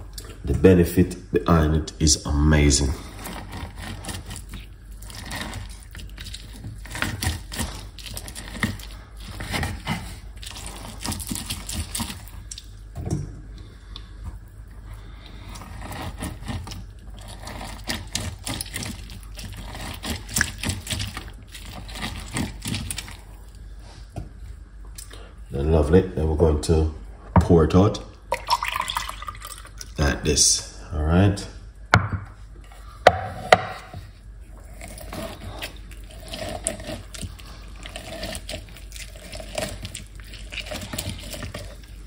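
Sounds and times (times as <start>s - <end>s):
orange squelching on citrus reamer: 34.4s - 42.0s.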